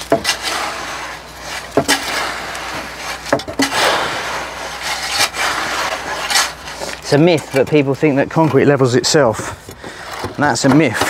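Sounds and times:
concrete rake knocks: 0.0 - 0.9, 1.5 - 7.6
wet concrete scraping and sloshing: 0.0 - 11.0.

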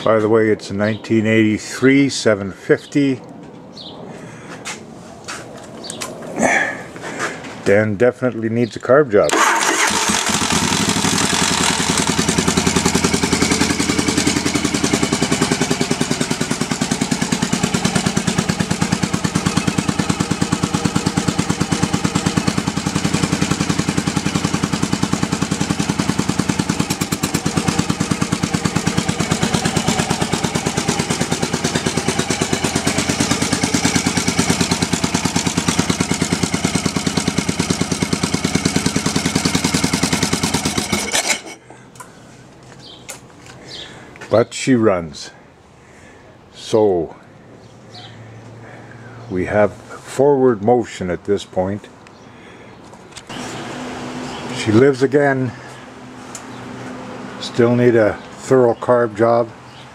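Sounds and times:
motorcycle engine running: 9.4 - 41.6, 53.3 - 57.4.

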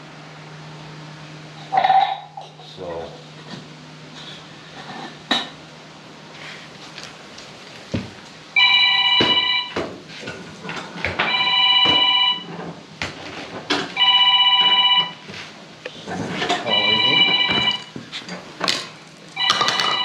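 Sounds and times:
phone ringing: 8.6 - 9.8, 11.2 - 12.5, 14.0 - 15.2, 16.6 - 18.0, 19.4 - 20.0
knocks and clanks: 16.1 - 20.0.

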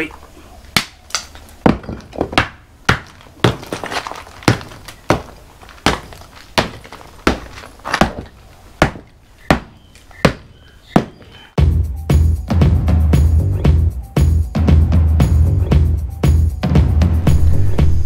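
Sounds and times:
hammer striking concrete rubble: 0.8 - 10.4.

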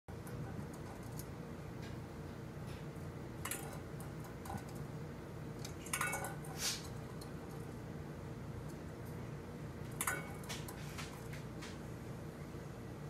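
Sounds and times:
birds pecking at metal bowl: 0.1 - 2.0, 3.4 - 8.0, 9.8 - 11.4
steady low hum: 0.1 - 13.0.

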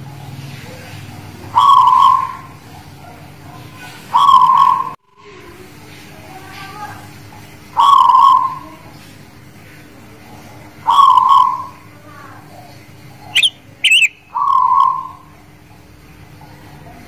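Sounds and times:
dove cooing: 0.7 - 2.9, 3.5 - 5.0, 7.8 - 8.8, 10.8 - 11.9, 13.2 - 15.4
short high bird chirps: 13.3 - 15.2.

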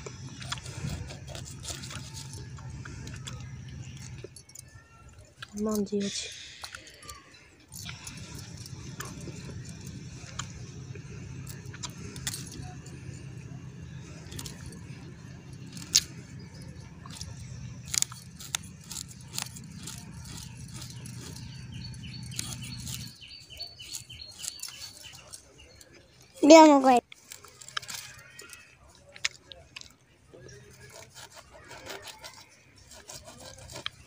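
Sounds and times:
steady low hum: 0.0 - 4.6, 5.8 - 26.4
bird chirping: 0.0 - 29.2
bangles clinking: 0.0 - 30.0
knife scraping fish: 17.2 - 25.3, 30.5 - 34.0.

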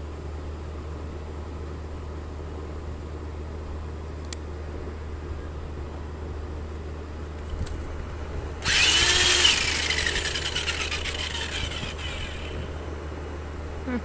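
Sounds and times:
electric drill whine: 8.6 - 12.8.

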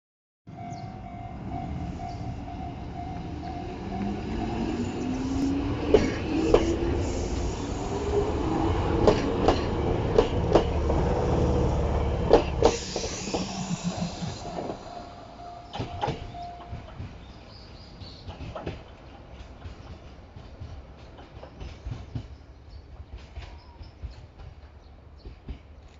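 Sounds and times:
low train rumble: 0.5 - 25.9
wheels clicking over rail joints: 15.6 - 22.4.

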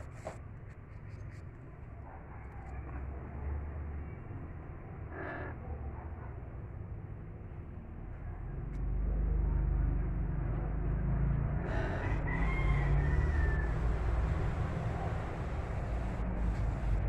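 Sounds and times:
steady low rumble: 0.0 - 17.0
rooster crowing: 11.6 - 14.8.

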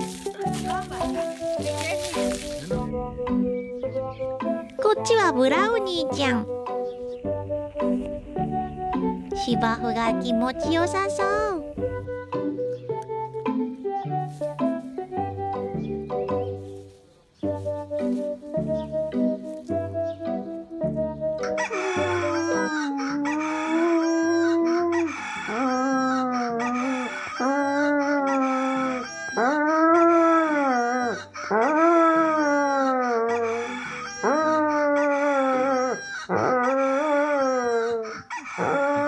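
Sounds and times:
soft background music: 0.0 - 37.6
dog howling and whining: 21.6 - 39.0.

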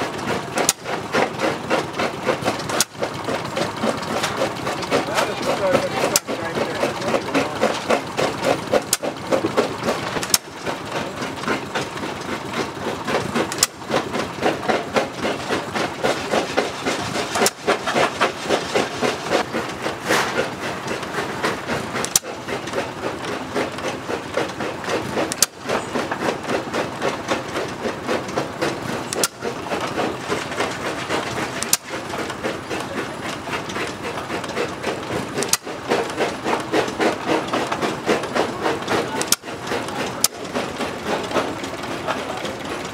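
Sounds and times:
old engines chuffing and clattering: 0.0 - 42.9
sharp clicks: 29.1 - 29.4, 39.2 - 39.5.

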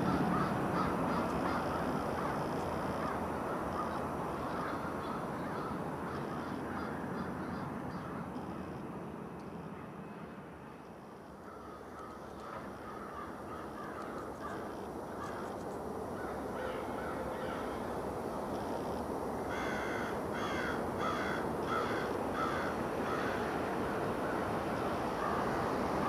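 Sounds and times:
crow cawing: 0.0 - 8.2, 11.4 - 15.5, 16.2 - 17.9, 19.5 - 23.6.

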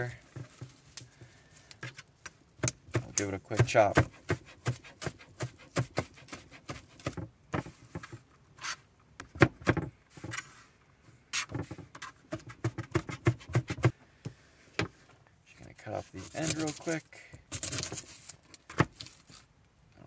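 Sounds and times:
knife chopping on cutting board: 2.6 - 7.2, 12.3 - 13.9.

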